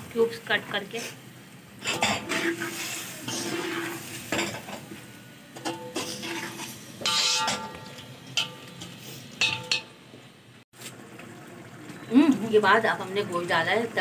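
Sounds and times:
spoon clanking and scraping metal pot: 0:01.8 - 0:04.9, 0:05.6 - 0:10.0.

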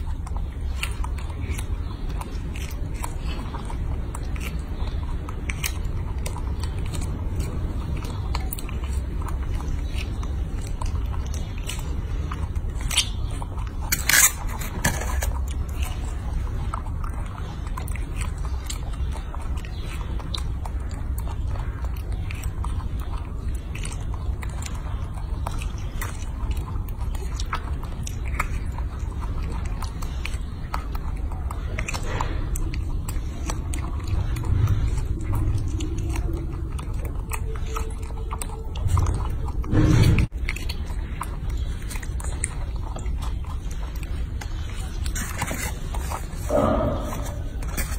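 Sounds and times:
monkey chewing wet clicks: 0:00.0 - 0:47.9
low rumble: 0:31.8 - 0:41.3.

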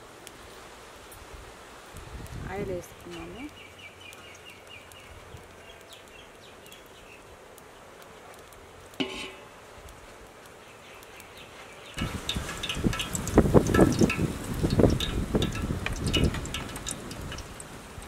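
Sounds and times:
crackling hissing noise: 0:00.0 - 0:18.0.

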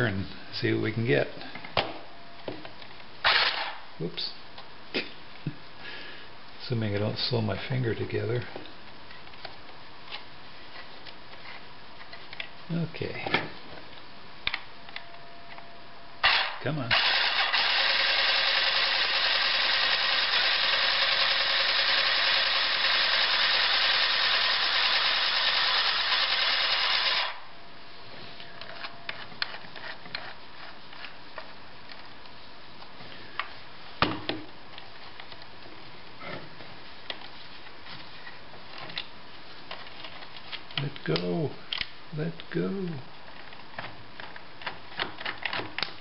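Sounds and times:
sewing machine motor whirring: 0:16.2 - 0:27.4.

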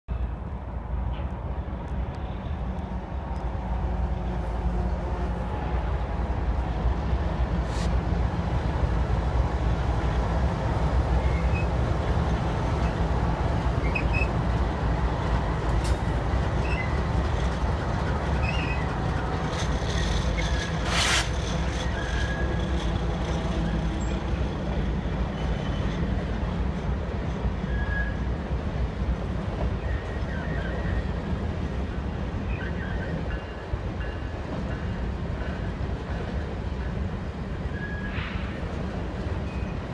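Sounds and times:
diesel locomotive rumble: 0:00.1 - 0:39.9
freight cars rolling on rails: 0:00.9 - 0:39.9
short high squeaks: 0:20.0 - 0:22.6.

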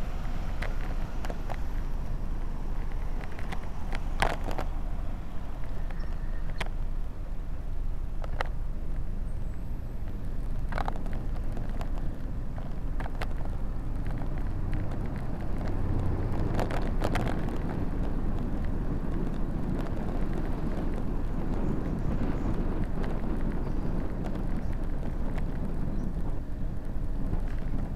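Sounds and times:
wind and road rumble: 0:00.0 - 0:27.9.

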